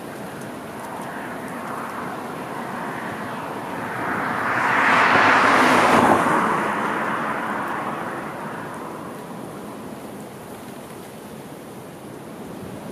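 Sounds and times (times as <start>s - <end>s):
strong wind rushing: 1.1s - 10.0s.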